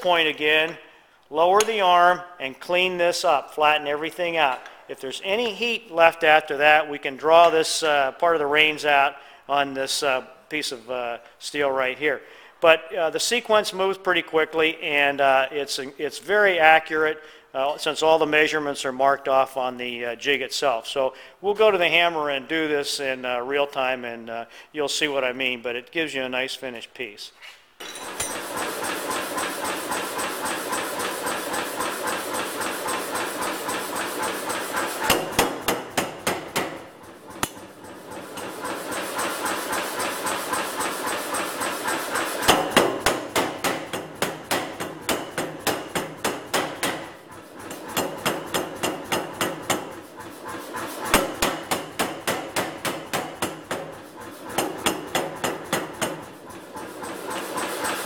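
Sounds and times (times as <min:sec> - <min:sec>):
power hammer blows on steel: 0:27.8 - 0:58.0
steady mechanical noise: 0:27.9 - 0:58.0.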